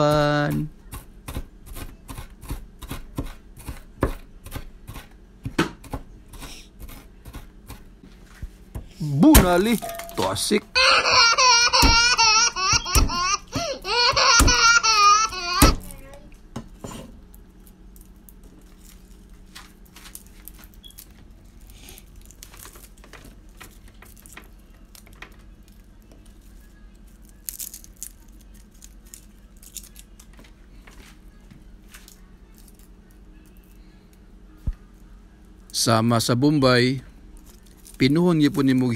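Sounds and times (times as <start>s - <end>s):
low steady hum: 0.0s - 38.9s.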